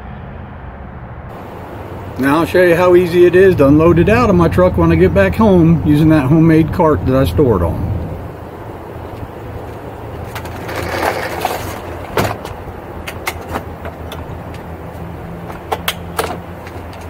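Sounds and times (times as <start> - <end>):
steady low hum: 0.0 - 17.0
knocks and clicks of handling: 12.0 - 14.7, 15.4 - 17.0.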